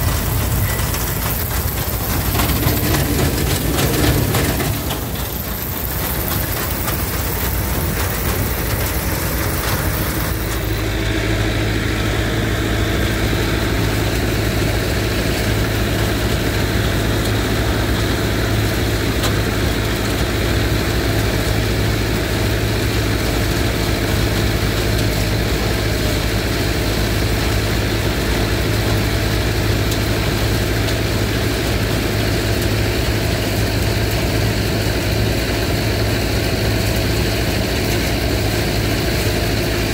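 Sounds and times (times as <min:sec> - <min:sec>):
engine running: 0:00.0 - 0:39.9.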